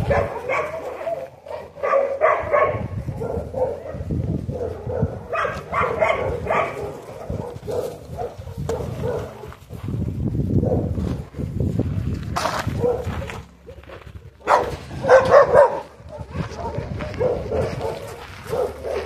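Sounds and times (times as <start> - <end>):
dogs barking: 0.0 - 9.6, 10.6 - 11.2, 12.6 - 19.0.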